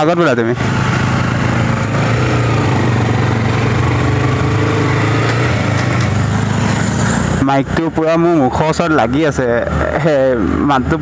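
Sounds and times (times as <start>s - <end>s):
motorcycle engine running: 0.4s - 7.9s.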